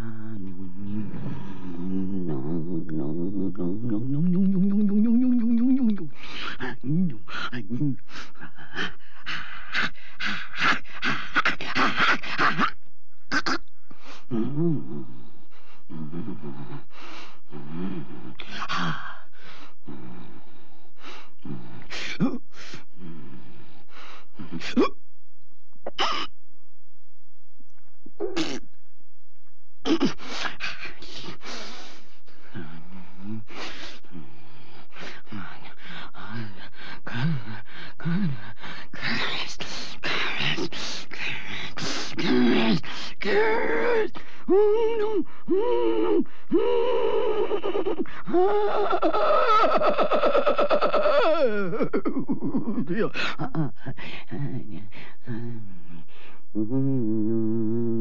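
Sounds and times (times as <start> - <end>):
woman growling demon sounds: 0.0 - 8.0, 42.1 - 55.7
harsh gasping breaths: 6.1 - 12.4, 15.4 - 24.6, 30.2 - 43.3, 53.1 - 56.5
woman rasping breaths and hisses: 30.1 - 52.0
woman's rising cries: 43.4 - 52.8.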